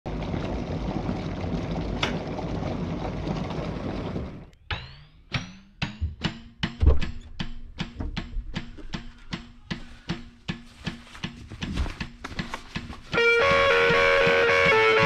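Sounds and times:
drum hits: 0:04.7 - 0:12.2.

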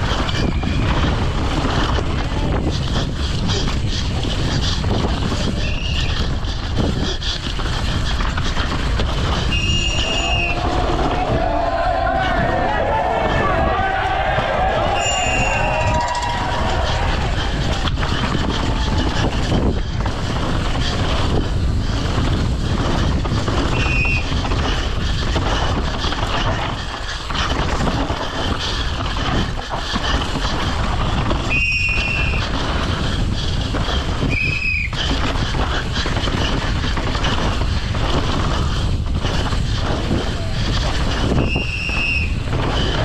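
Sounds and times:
bike knocks and rattles: 0:00.0 - 0:11.4, 0:14.2 - 0:43.0
wind and tyre noise: 0:00.0 - 0:43.0
disc brakes squealing: 0:00.1 - 0:01.1, 0:05.5 - 0:06.5, 0:09.3 - 0:10.7, 0:14.9 - 0:17.4, 0:23.7 - 0:24.8, 0:31.4 - 0:32.6, 0:34.2 - 0:35.1, 0:41.2 - 0:43.0.

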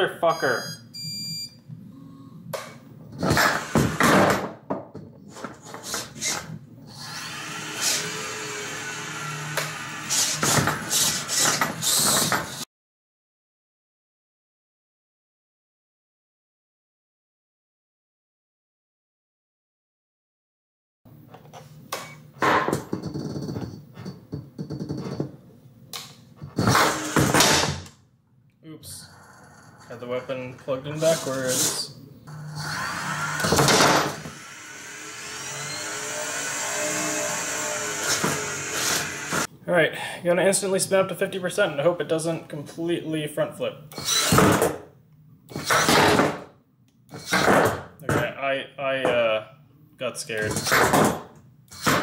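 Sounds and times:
weapon motor whirring: 0:06.1 - 0:12.6, 0:31.0 - 0:39.5, 0:43.9 - 0:44.6
robot weapon motor spinning up: 0:44.0 - 0:44.6.

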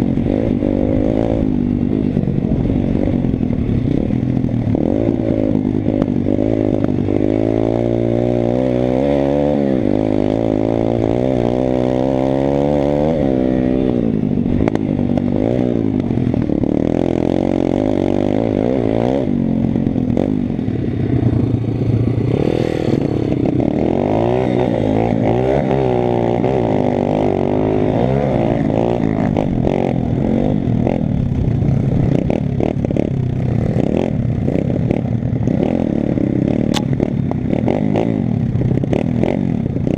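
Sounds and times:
motorbike engine revving: 0:00.0 - 0:39.9.

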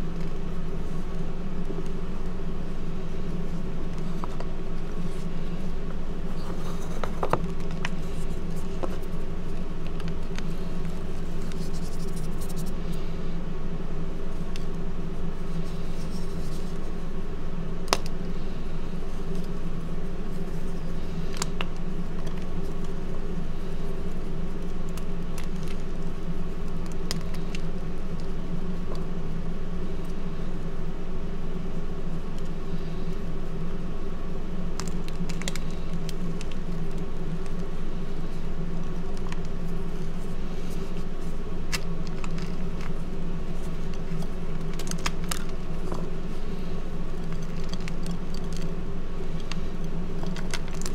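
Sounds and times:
steady low hum: 0:00.0 - 0:50.9
chalk crumbling and cracking: 0:03.0 - 0:13.2, 0:17.8 - 0:29.2, 0:34.7 - 0:50.9.

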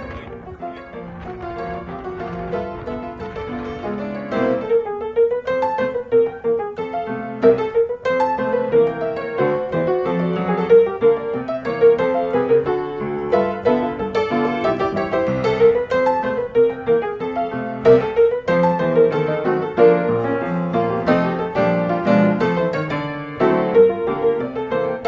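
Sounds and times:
piano melody: 0:00.0 - 0:25.0.

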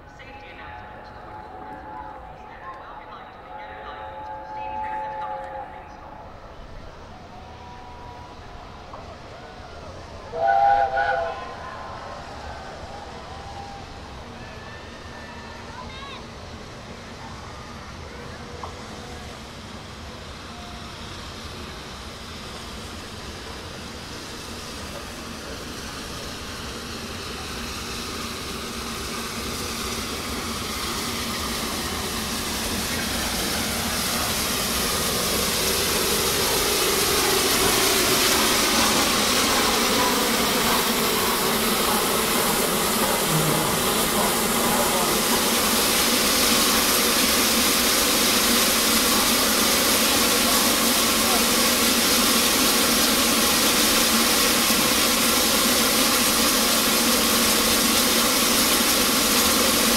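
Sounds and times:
steam locomotive hissing: 0:00.0 - 0:59.9
faint falling tones: 0:43.0 - 0:45.3.

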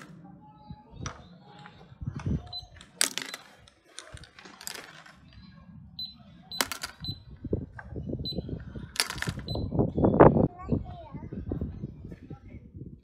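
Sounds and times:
plastic toys knocking in basket: 0:01.0 - 0:05.2, 0:06.5 - 0:07.1, 0:09.0 - 0:09.5.

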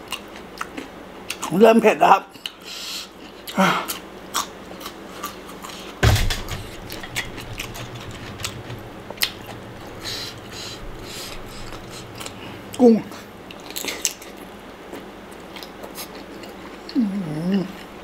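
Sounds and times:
dull thump: 0:06.0 - 0:12.7.

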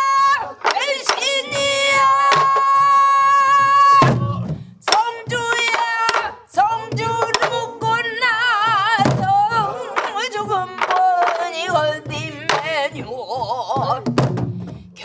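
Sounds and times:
woman singing: 0:00.0 - 0:14.2
barrel drums struck with sticks: 0:03.8 - 0:12.9.

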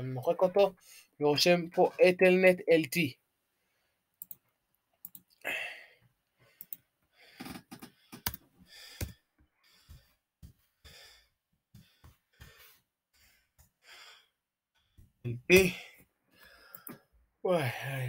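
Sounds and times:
mouse click: 0:04.2 - 0:04.4
soft breathing: 0:05.4 - 0:15.2, 0:15.8 - 0:17.1.

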